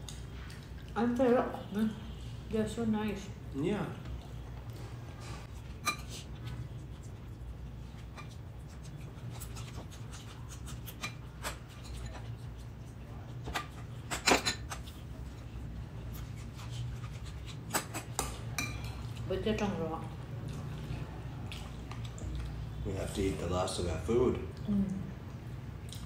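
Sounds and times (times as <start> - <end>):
rustles of hands and food: 3.9 - 14.0, 14.7 - 18.1, 18.8 - 23.4.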